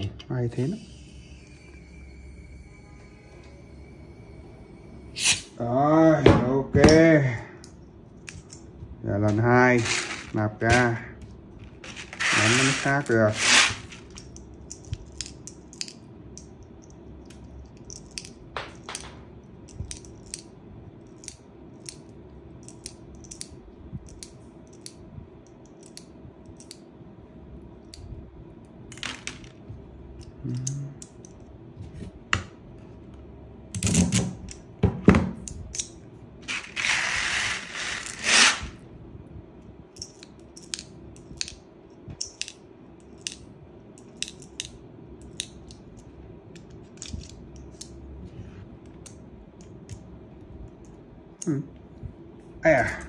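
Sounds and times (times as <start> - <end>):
rattling hiss: 11.8 - 14.1.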